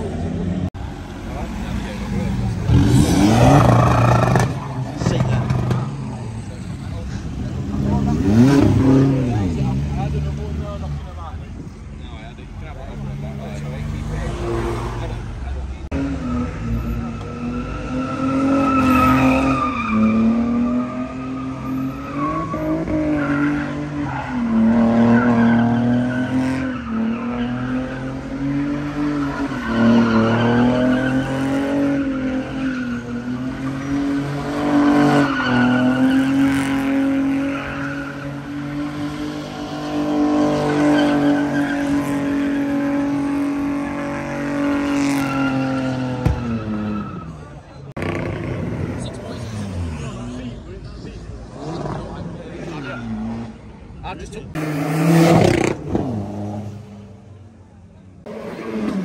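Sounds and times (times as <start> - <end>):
car engine revving: 0.7 - 11.3, 12.6 - 53.8
tyres screeching: 16.0 - 39.0, 39.8 - 50.5.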